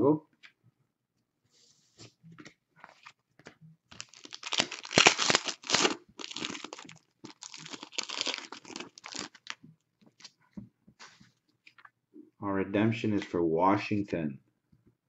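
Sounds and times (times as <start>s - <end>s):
plastic wrapper crinkling: 3.9s - 9.6s.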